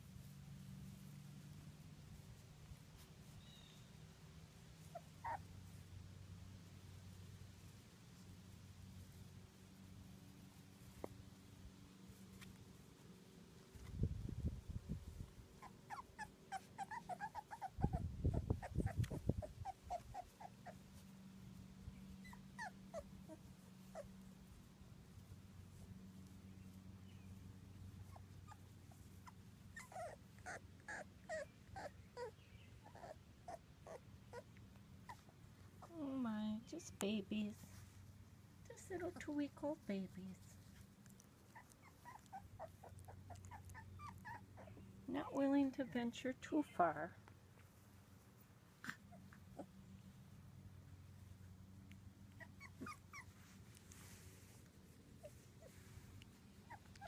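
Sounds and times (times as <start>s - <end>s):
low steady hum: 0.0s - 57.0s
puppies whimpering: 4.9s - 5.5s, 15.6s - 21.1s, 22.2s - 24.1s, 28.0s - 34.5s, 41.4s - 44.8s, 52.3s - 53.6s, 56.6s - 57.0s.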